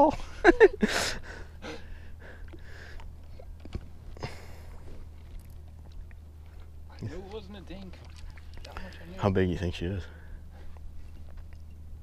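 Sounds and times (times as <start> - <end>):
low steady hum: 0.0 - 12.0
quiet breathing: 0.9 - 3.5, 4.1 - 5.4, 10.0 - 11.3.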